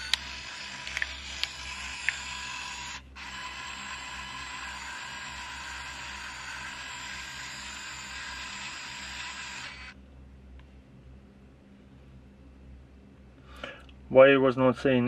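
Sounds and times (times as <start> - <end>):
small clicks: 0.0 - 2.4
camera film motor whirring: 0.0 - 10.0.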